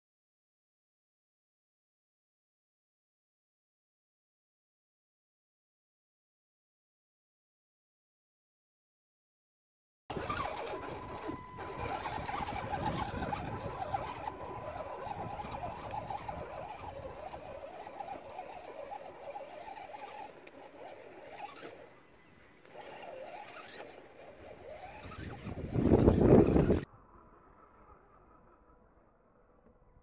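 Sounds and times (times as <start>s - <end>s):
electric motor and gears whining: 10.1s - 28.8s.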